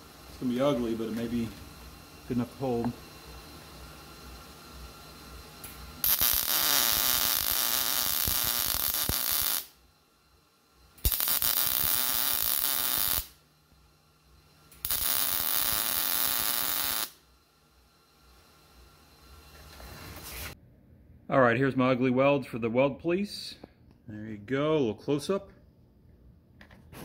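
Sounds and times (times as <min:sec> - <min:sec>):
welder arc crackling: 0:00.0 - 0:09.8, 0:10.8 - 0:13.5, 0:14.6 - 0:20.6.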